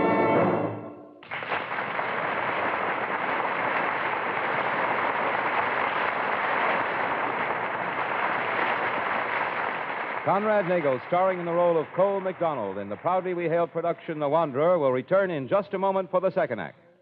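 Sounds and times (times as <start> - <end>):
brass orchestral sting: 0.0 - 1.2.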